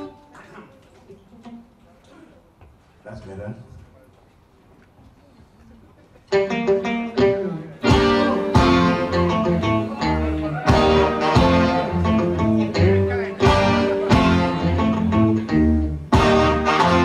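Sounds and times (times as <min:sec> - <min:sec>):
guitar: 0:00.0 - 0:01.6, 0:06.3 - 0:17.0
band playing instrumental: 0:06.3 - 0:17.0.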